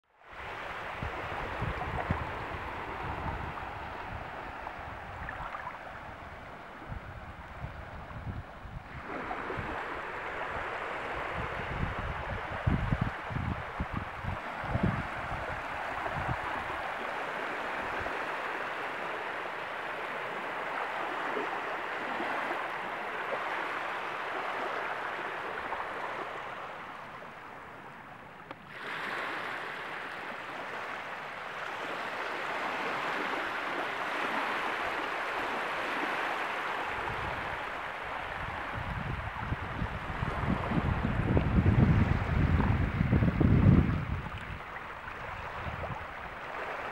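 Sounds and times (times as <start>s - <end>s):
water lapping at shoreline: 0.2s - 46.9s
wind buffeting microphone: 0.4s - 17.2s, 36.9s - 46.9s.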